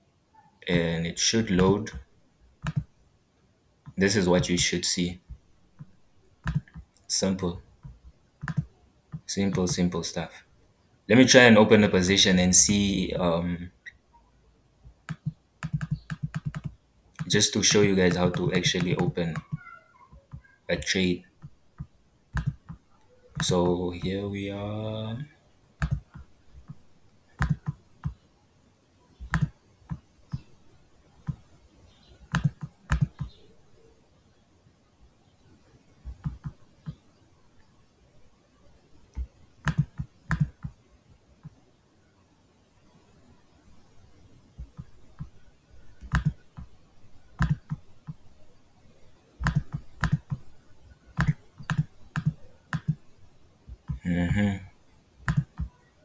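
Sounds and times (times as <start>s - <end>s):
computer mouse clicking: 2.6s - 2.9s, 5.8s - 7.1s, 7.8s - 9.6s, 15.0s - 17.3s, 21.4s - 23.6s, 25.8s - 26.8s, 27.4s - 28.2s, 29.2s - 30.5s, 32.3s - 33.4s, 36.0s - 37.0s, 39.1s - 40.8s, 46.0s - 46.7s, 47.4s - 48.2s, 49.4s - 50.5s, 51.2s - 53.0s, 55.2s - 55.7s.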